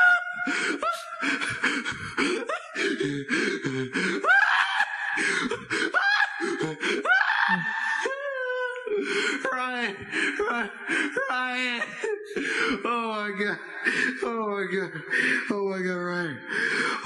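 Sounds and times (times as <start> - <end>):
man laughing hard: 0.0 - 8.2.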